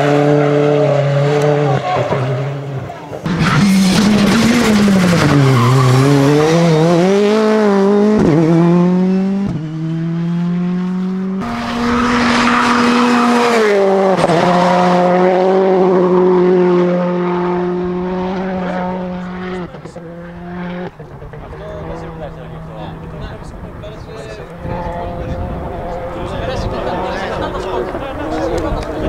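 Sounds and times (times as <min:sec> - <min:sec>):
rally car engine revving: 0:00.0 - 0:29.0.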